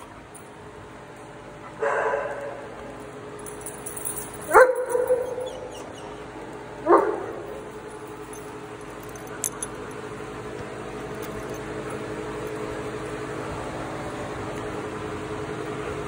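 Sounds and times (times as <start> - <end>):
steady hum: 0.0 - 16.0
dog barking: 1.8 - 2.6, 4.5 - 6.0, 6.8 - 7.5.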